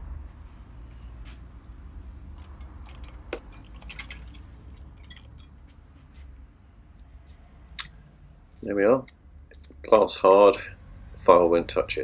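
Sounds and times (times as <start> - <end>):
metal tools clicking and clinking: 2.4 - 5.7, 7.0 - 12.0.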